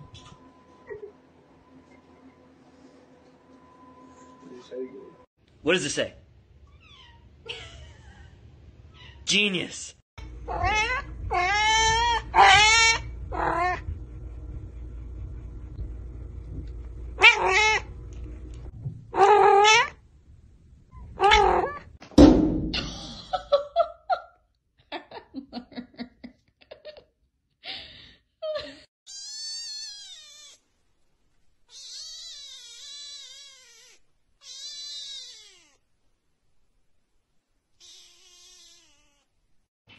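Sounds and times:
cat meowing: 0:10.5 - 0:13.8, 0:17.2 - 0:17.9, 0:19.2 - 0:20.0, 0:21.2 - 0:21.8, 0:29.1 - 0:30.6, 0:31.7 - 0:35.8, 0:37.8 - 0:39.3
kitten mewing: 0:31.7 - 0:35.8, 0:37.8 - 0:39.3.

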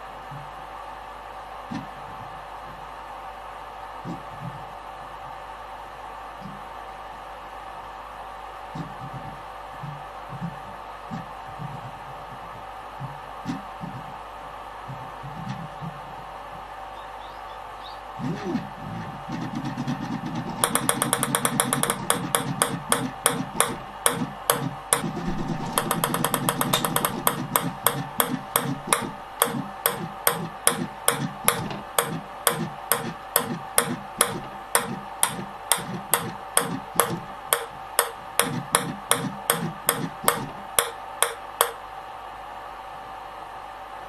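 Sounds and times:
steady machine whine: 0:00.0 - 0:43.8
ping-pong ball clicking on plate: 0:20.6 - 0:41.8.

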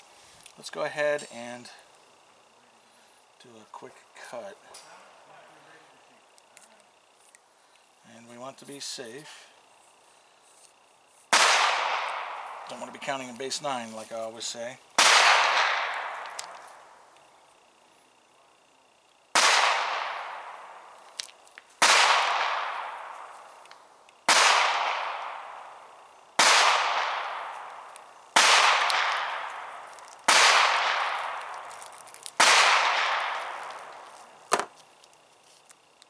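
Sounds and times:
gunshots with echo: 0:15.0 - 0:16.2, 0:21.8 - 0:23.1, 0:24.3 - 0:25.5, 0:26.4 - 0:27.5, 0:28.4 - 0:31.4, 0:32.4 - 0:33.6.

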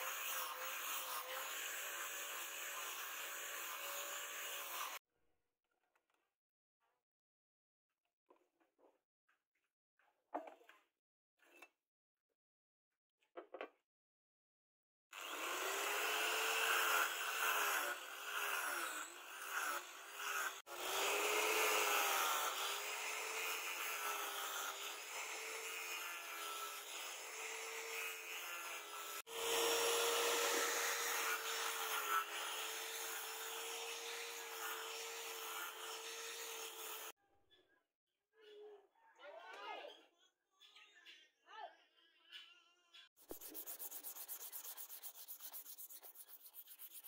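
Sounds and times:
angle grinder motor whine: 0:27.6 - 0:37.1
sanding disc hissing on wood: 0:43.2 - 0:47.0.

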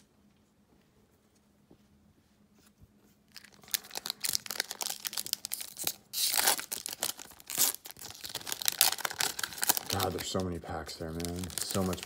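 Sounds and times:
card pack wrappers crinkling: 0:03.3 - 0:12.0
wrapper tearing rustle: 0:03.3 - 0:12.0.

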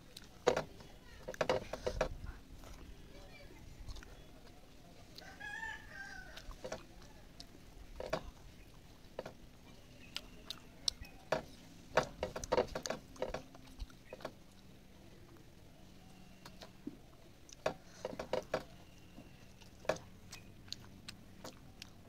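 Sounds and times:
eating by hand clicks and smacks: 0:00.0 - 0:02.9, 0:03.8 - 0:05.3, 0:06.3 - 0:15.5, 0:17.4 - 0:22.0
chewing: 0:00.0 - 0:22.0
rooster crowing: 0:05.2 - 0:06.5.

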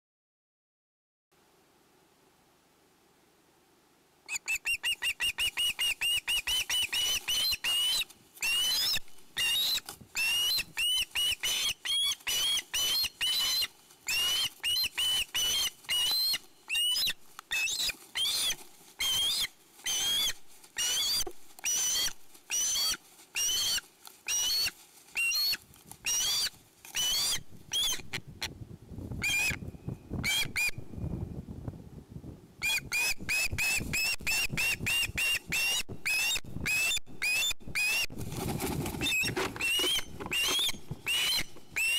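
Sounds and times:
osprey shrill piping calls: 0:04.3 - 0:28.2, 0:29.2 - 0:30.8, 0:32.6 - 0:38.1, 0:39.0 - 0:41.9
low rustle: 0:22.2 - 0:26.9, 0:38.1 - 0:41.8.

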